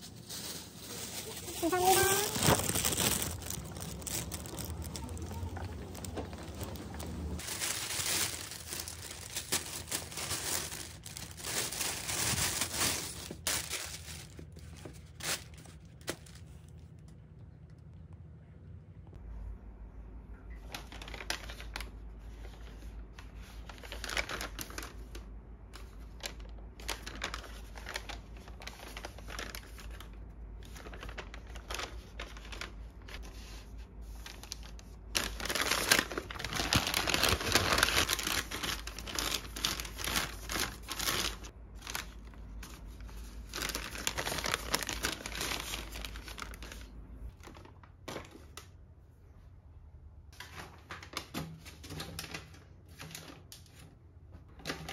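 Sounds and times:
paper bag crinkling: 0.0 - 17.0, 23.4 - 25.3, 26.1 - 47.9.

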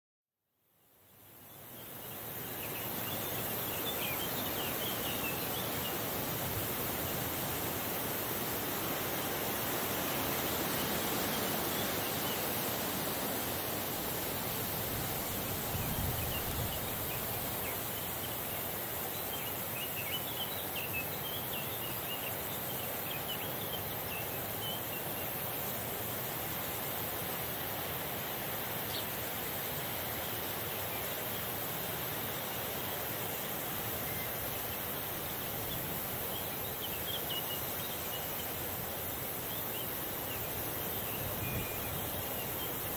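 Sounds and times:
breeze hissing: 2.2 - 23.0.

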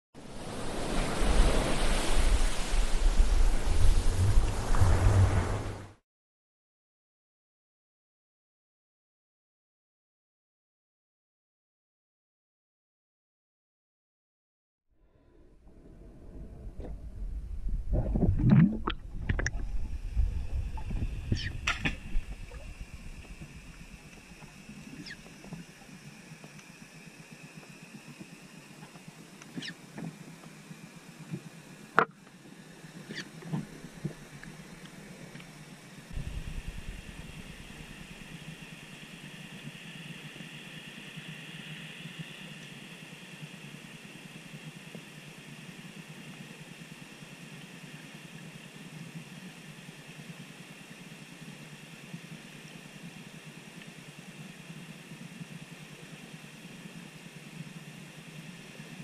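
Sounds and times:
faint underwater hiss: 0.2 - 6.0, 15.2 - 59.0
small underwater clicks and knocks: 17.9 - 26.8.

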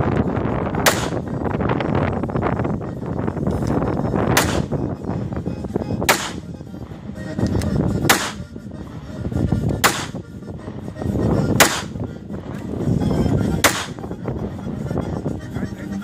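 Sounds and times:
pistol shots: 0.8 - 1.2, 4.4 - 4.8, 6.1 - 6.5, 8.1 - 8.4, 9.8 - 10.2, 11.6 - 11.9, 13.6 - 13.9.

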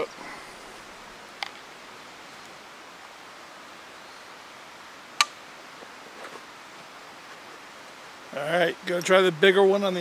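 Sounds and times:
steady outdoor hiss: 0.0 - 10.0.

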